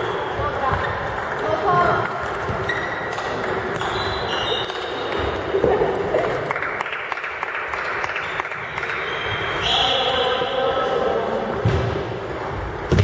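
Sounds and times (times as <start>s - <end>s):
table tennis balls clicking: 0.0s - 6.8s.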